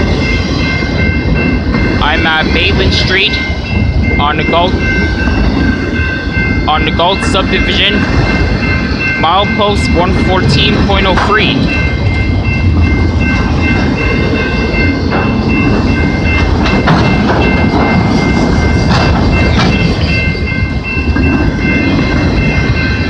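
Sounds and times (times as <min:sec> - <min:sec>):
freight train rumbling on rails: 0:00.0 - 0:23.0
high ringing tone: 0:00.0 - 0:23.0
wheels clacking over rail joints: 0:15.1 - 0:23.0.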